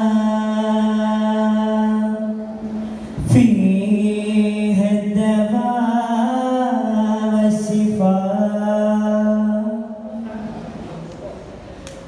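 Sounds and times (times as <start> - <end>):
man singing devotional song: 0.0 - 2.5, 3.2 - 10.2.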